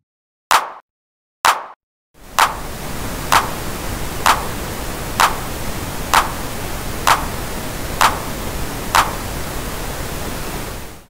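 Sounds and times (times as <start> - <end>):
drum machine clap: 0.5 - 0.8, 1.5 - 1.8, 2.4 - 2.7, 3.3 - 3.6, 4.2 - 4.6, 5.2 - 6.4, 7.1 - 7.4, 8.0 - 8.4, 9.0 - 9.3
steady pink noise: 2.2 - 11.0.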